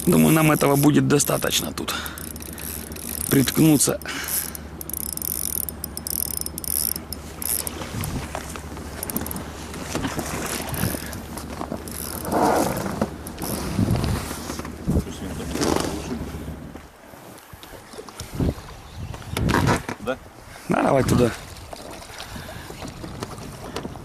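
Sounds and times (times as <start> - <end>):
fishing reel ratcheting: 0.0 - 8.2, 9.0 - 9.5, 10.5 - 12.4, 13.2 - 13.7.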